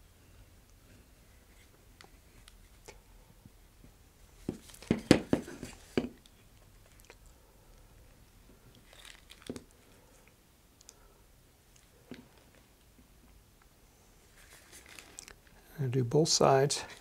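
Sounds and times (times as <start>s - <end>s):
plastic bag clicks and crinkles: 8.7s - 9.7s.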